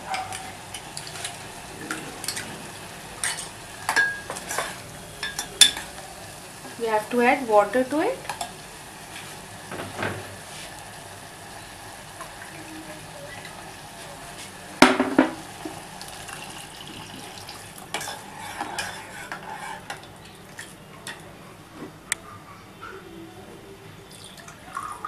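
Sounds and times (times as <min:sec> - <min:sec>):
sauce frying in a saucepan: 0:00.1 - 0:14.8, 0:15.4 - 0:20.8
kitchenware clattering against pan: 0:03.2 - 0:05.9, 0:14.8 - 0:15.4.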